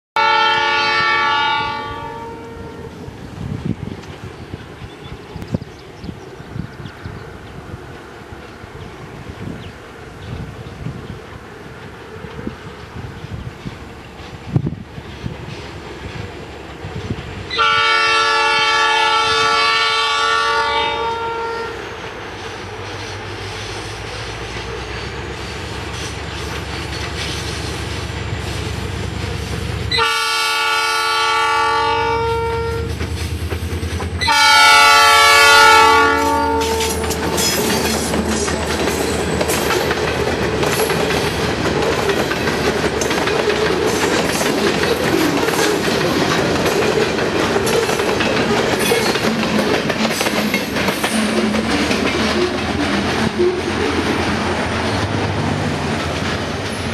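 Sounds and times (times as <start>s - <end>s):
locomotive air horn blasts: 0.2s - 3.0s, 17.5s - 22.0s, 29.9s - 33.0s, 34.2s - 37.4s
locomotive engine rumble: 21.8s - 56.9s
train cars clattering over rails: 21.9s - 30.3s, 32.8s - 34.8s, 35.7s - 56.9s.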